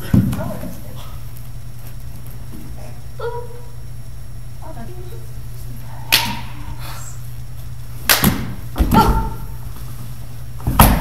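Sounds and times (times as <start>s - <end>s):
sharp slap: 6.1s - 6.6s, 8.0s - 9.1s
body thudding on wooden floor: 8.2s - 9.4s.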